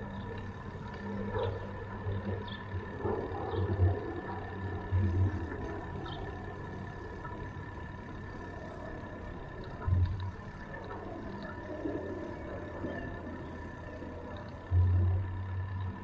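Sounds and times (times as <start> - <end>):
faint steady whine: 0.0 - 16.0
light ticks: 9.2 - 12.1, 12.8 - 16.0.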